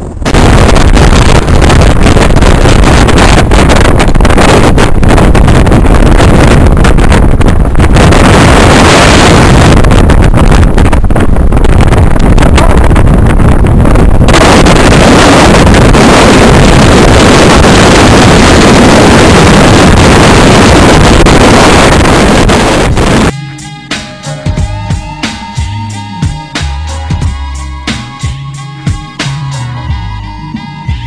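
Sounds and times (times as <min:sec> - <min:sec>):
strong wind on microphone: 0:00.0 - 0:23.4.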